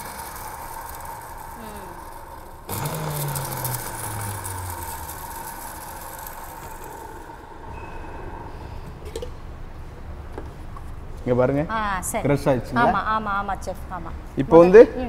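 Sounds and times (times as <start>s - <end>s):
electric mixer grinder running: 0.0s - 7.8s.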